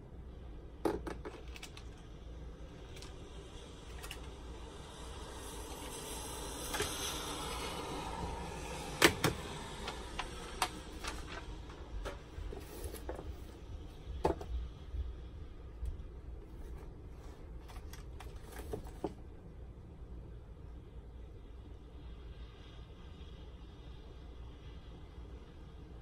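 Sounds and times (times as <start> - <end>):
ring binder opening: 9.0 - 13.4
objects knocking on hard desk: 14.2 - 14.5.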